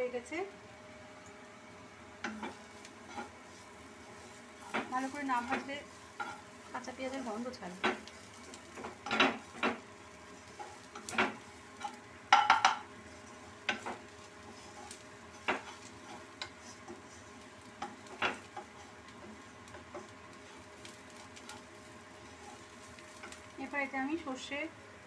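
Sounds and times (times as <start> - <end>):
oil sizzling: 0.0 - 25.0
spatula scraping in a wok: 2.2 - 24.5
knocks against pan: 12.3 - 12.9.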